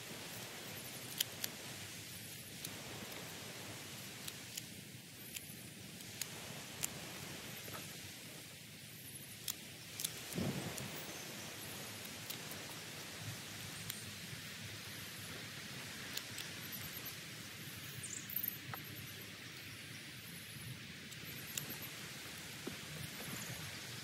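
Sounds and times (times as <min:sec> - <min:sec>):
rustle of cut plants: 0:00.0 - 0:24.0
wind buffeting microphone: 0:10.3 - 0:11.1.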